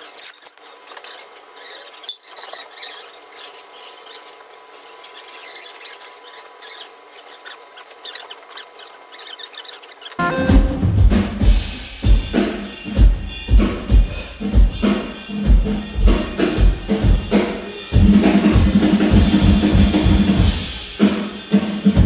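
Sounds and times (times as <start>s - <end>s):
hand rubbing squeaky window glass: 0.0s - 10.3s.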